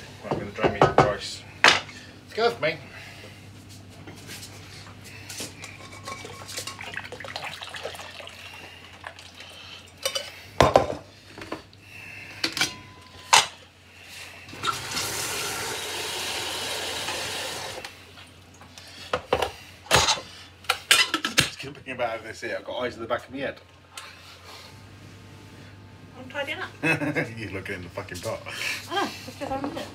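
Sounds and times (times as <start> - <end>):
metal pots and utensils clattering: 5.6 - 8.0, 9.9 - 11.6, 19.4 - 21.6
water pouring into a sink: 6.8 - 9.4, 14.6 - 17.8.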